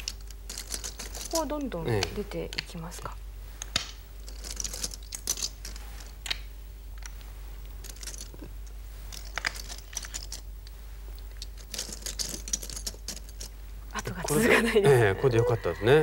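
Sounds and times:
stones clicking on board: 0.0s - 2.8s, 3.6s - 7.2s, 9.1s - 13.5s
steady low hum: 0.0s - 16.0s.

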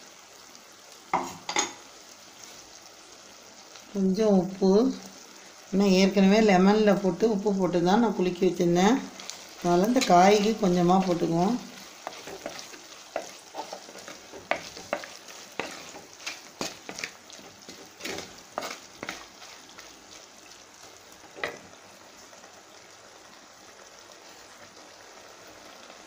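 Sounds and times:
soft sizzle: 0.0s - 26.0s
wooden spatula scraping clay pot: 9.2s - 20.0s.

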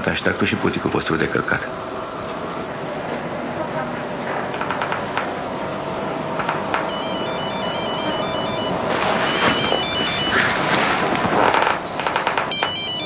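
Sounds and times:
phone ringtone beeping melody: 6.9s - 10.4s, 12.5s - 13.0s.

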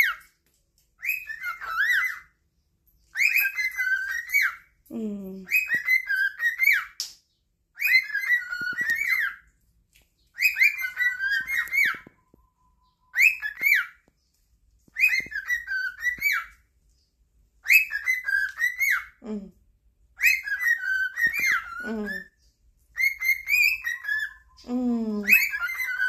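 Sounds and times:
cockatiel whistling: 1.0s - 2.3s, 3.1s - 4.6s, 5.5s - 7.0s, 7.8s - 9.4s, 10.4s - 14.0s, 14.9s - 16.5s, 17.6s - 19.2s, 20.2s - 22.3s, 23.0s - 24.6s, 25.2s - 26.0s.

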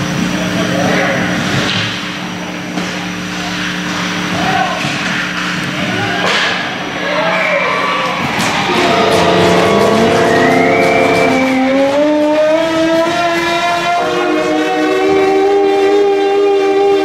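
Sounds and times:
music: 8.6s - 17.0s
loud goal horn: 8.7s - 17.0s.

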